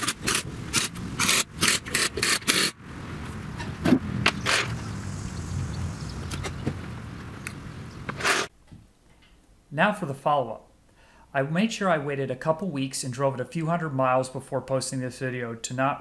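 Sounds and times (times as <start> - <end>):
pneumatic impact wrench bursts: 0.0 - 2.8
low steady rumble: 2.8 - 8.2.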